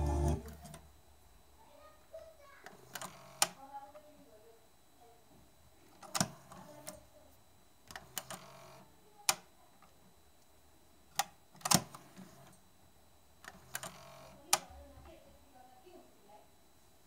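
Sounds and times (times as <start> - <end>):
cassette mechanism whir: 0.0 - 0.9, 2.7 - 3.6, 7.9 - 9.4, 11.2 - 12.5, 13.4 - 14.7.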